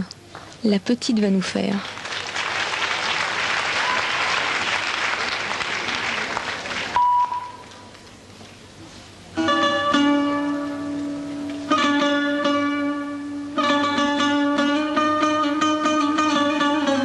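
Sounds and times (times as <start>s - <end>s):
audience applauding: 1.8s - 7.0s
steady beep tone: 7.0s - 7.6s
plucked-string music: 9.3s - 17.0s.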